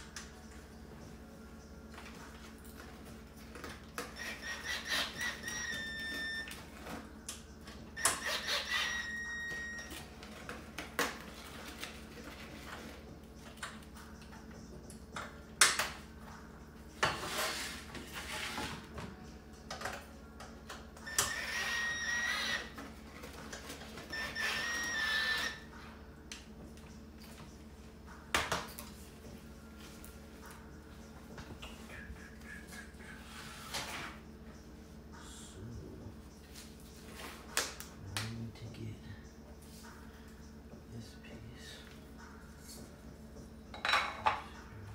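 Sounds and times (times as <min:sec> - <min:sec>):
cordless drill whining: 0:21.1 - 0:22.6.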